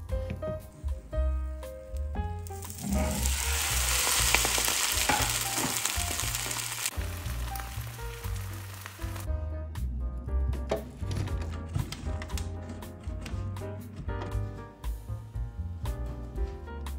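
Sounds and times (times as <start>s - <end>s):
background music with bass line: 0.0s - 16.9s
patty sizzling in hot oil: 2.4s - 9.3s.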